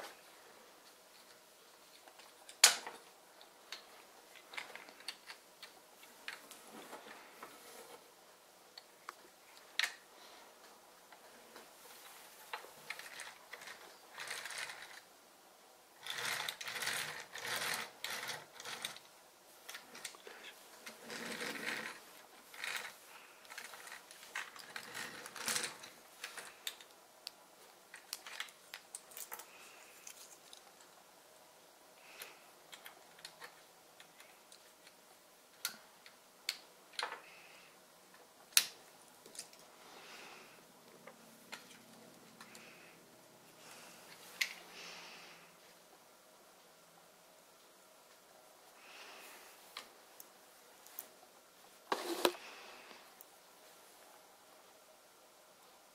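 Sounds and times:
plastic toy ratchet clicking: 16.0 - 19.0.

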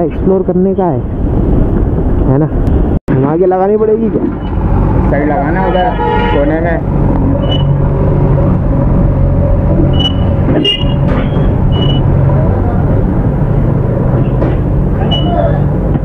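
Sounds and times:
short high beeps: 9.9 - 12.0.

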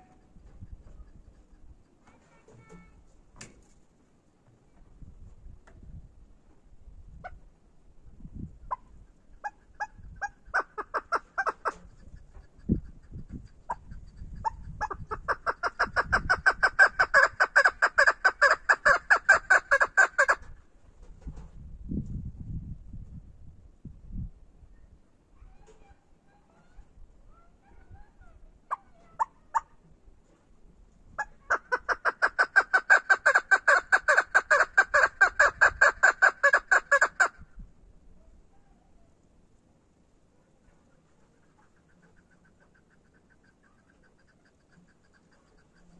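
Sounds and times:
partridge calling: 8.7 - 20.5, 31.2 - 37.4.

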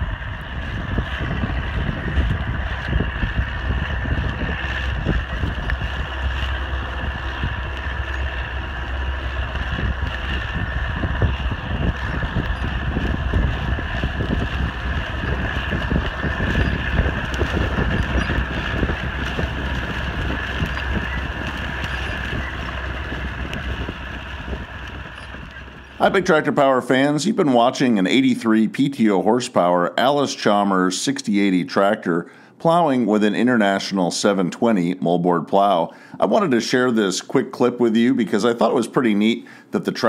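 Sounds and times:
wind buffeting microphone: 0.0 - 28.6
tractor diesel engine under load: 0.0 - 34.8, 35.5 - 40.0.

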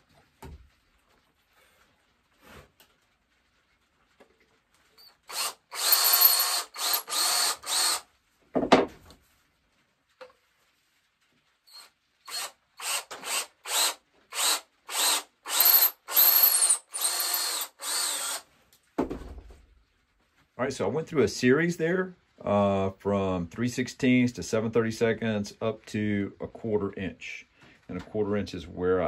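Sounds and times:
drill bit squealing: 5.0 - 8.0, 11.7 - 18.4
cordless drill bursts: 5.0 - 8.1, 11.7 - 18.5
knock: 8.6 - 9.0.

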